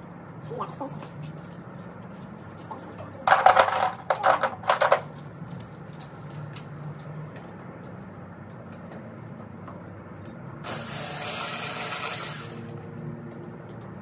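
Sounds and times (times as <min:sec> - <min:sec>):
metal tools clattering: 0:03.2 - 0:05.2.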